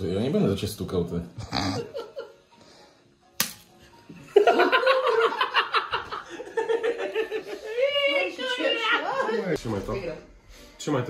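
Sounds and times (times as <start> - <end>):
laughter: 1.4 - 2.4, 4.1 - 8.0.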